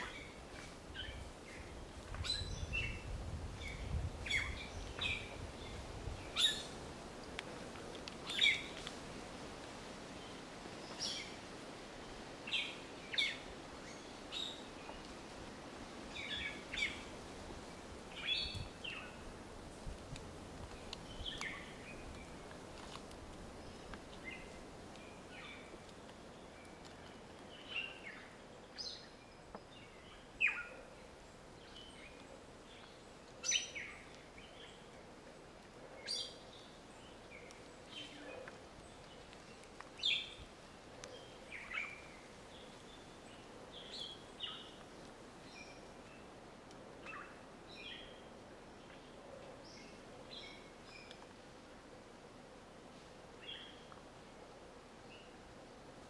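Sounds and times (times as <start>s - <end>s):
faint steady hiss: 0.0s - 56.0s.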